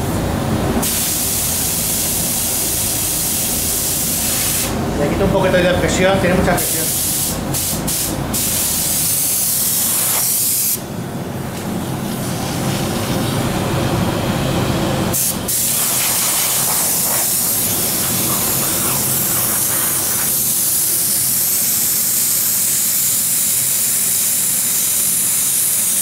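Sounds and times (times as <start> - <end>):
spray gun hissing: 0.8 - 4.8, 6.6 - 10.9, 15.1 - 26.0.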